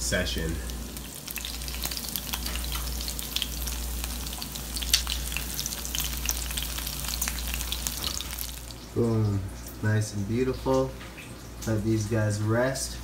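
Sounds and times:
chicken sizzling in oil: 0.0s - 9.8s.

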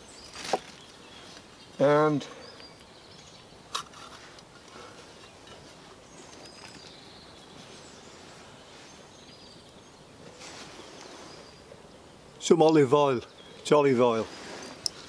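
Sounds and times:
soft rustle: 0.0s - 1.6s, 3.2s - 11.8s, 13.9s - 15.0s
faint bird chirps: 0.0s - 15.0s.

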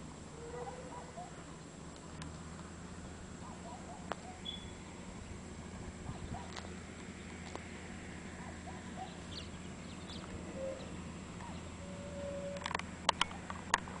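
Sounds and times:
steady low hum: 0.0s - 14.0s
small birds chirping: 3.4s - 5.0s, 8.3s - 11.8s.

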